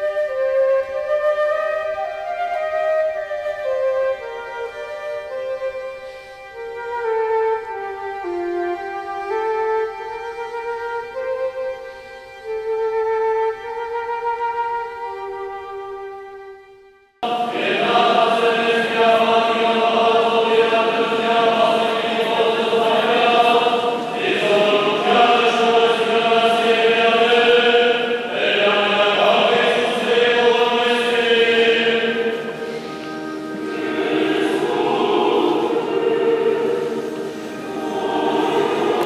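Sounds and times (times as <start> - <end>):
choir singing slow chant: 17.2 - 39.0.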